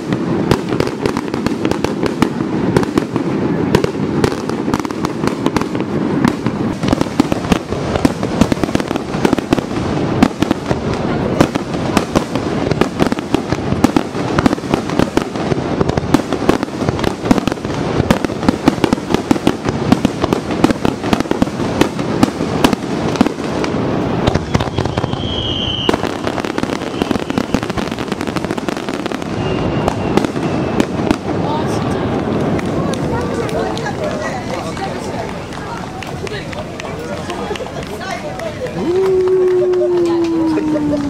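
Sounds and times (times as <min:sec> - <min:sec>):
fireworks bangs and crackles: 0:00.0 - 0:41.0
continuous rumble: 0:30.8 - 0:41.0.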